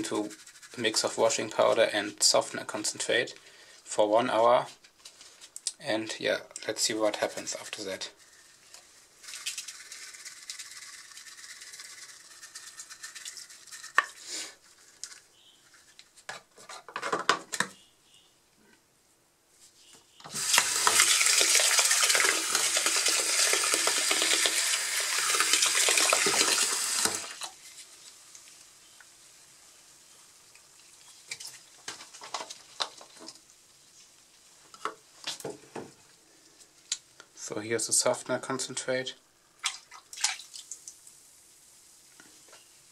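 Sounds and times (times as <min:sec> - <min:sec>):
powder poured into water: 0:07.3 - 0:15.0, 0:20.3 - 0:28.7
tap running into basin: 0:20.3 - 0:27.5.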